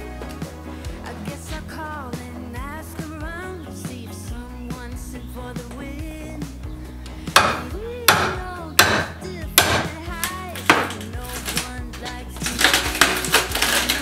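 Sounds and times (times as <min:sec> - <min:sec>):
background music with singing: 0:00.0 - 0:14.0
hammer knocking on wood: 0:07.4 - 0:09.9.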